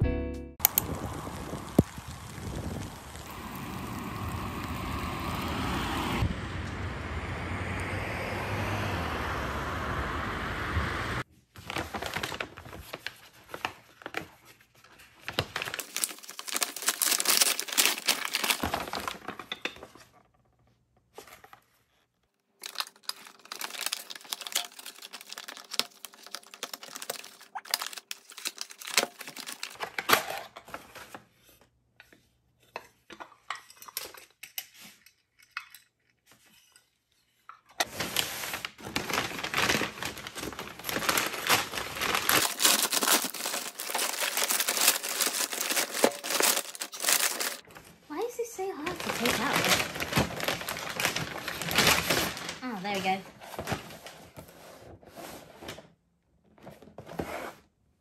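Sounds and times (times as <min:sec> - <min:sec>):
paper bag crinkling and tearing: 0:00.6 - 0:04.4, 0:11.5 - 0:19.5, 0:22.6 - 0:31.1, 0:37.8 - 0:54.4
cardboard box pulled out: 0:37.8 - 0:47.9.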